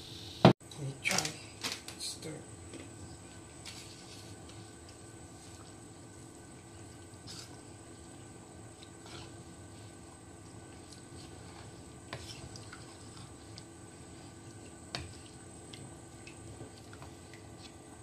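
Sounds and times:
sauce bubbling and squelching: 4.9s - 18.0s.

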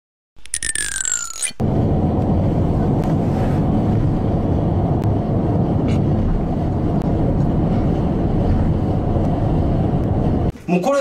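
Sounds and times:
car cabin road and engine hum: 1.6s - 10.6s.

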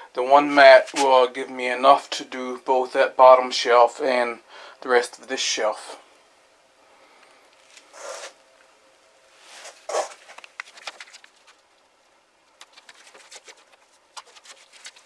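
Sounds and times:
rustling: 9.3s - 15.0s.

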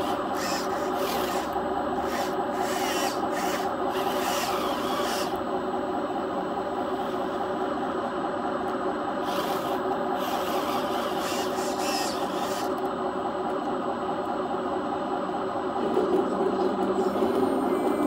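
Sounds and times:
small electric motors whirring: 0.0s - 5.4s, 9.2s - 12.9s.

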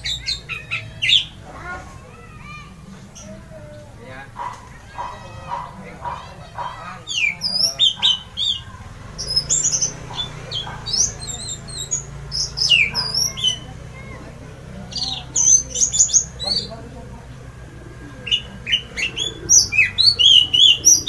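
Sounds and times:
thrush singing whistles and chirps: 7.0s - 13.8s, 18.2s - 21.0s.

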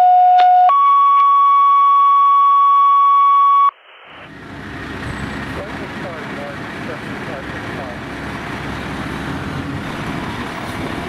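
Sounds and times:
radio pager tone: 0.0s - 4.3s
radio hiss: 3.7s - 4.3s
street traffic noise: 4.2s - 11.0s.

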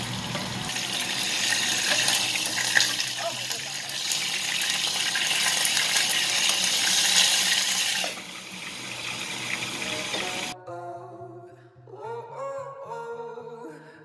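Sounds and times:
vegetables sizzling in hot oil: 0.0s - 10.6s.

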